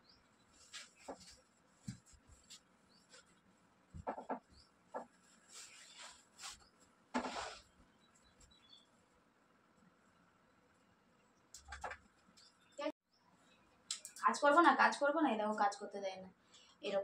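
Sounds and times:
bedsheets rustling: 0.5s - 4.1s, 5.1s - 7.8s.

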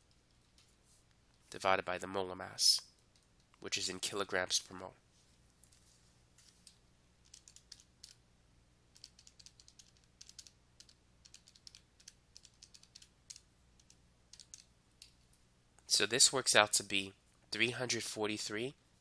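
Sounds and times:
low steady hum: 0.0s - 19.0s
calculator keys clicking: 7.2s - 8.2s, 9.0s - 14.7s.

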